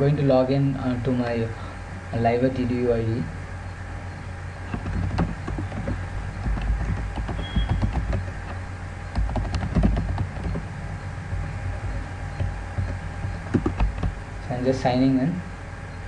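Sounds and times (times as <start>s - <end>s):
low steady hum: 0.0s - 16.0s
keyboard key clicks: 12.4s - 14.1s.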